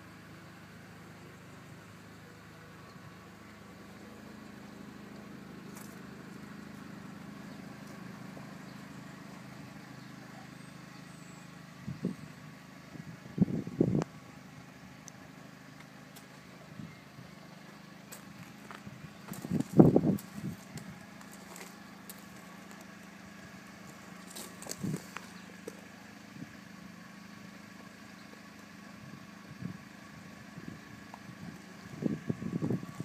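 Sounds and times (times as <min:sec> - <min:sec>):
parked car low hum: 0:00.0 - 0:33.0.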